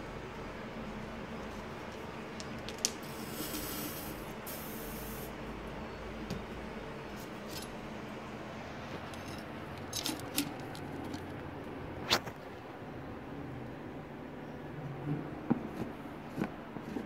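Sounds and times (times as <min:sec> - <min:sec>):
aerosol can spraying: 0:03.0 - 0:05.3.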